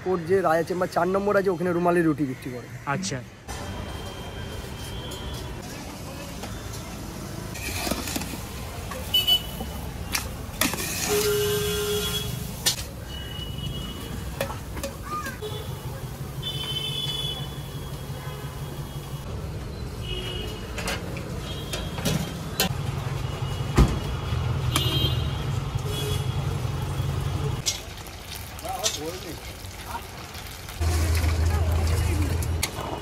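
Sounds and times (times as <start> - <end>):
street traffic: 0.0 - 33.0
car horn toots: 11.0 - 12.4.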